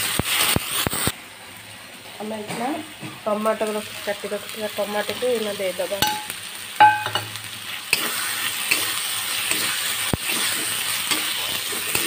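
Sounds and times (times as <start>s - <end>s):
tomatoes sizzling in oil: 0.0s - 12.0s
spatula scraping a pan: 7.7s - 12.0s.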